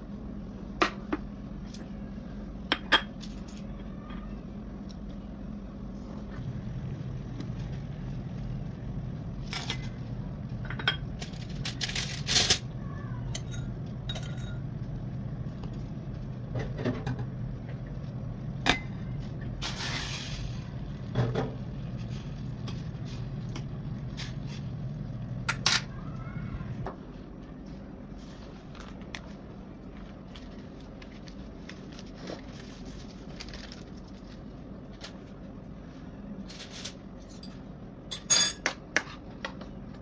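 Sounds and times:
steady low hum: 0.0 - 40.0
dishes and utensils clinking: 13.3 - 14.7, 37.2 - 39.2.

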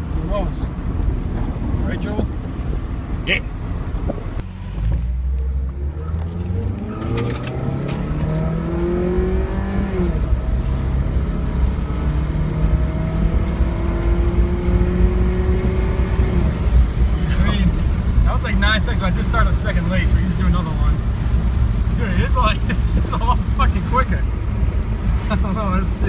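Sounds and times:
car engine revving at full throttle: 0.0 - 26.0
gearbox upshift: 4.9 - 9.6.

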